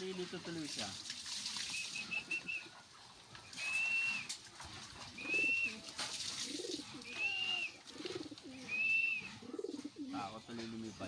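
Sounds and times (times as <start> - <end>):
pigeon cooing: 1.7 - 10.3
person whistling: 3.6 - 4.3.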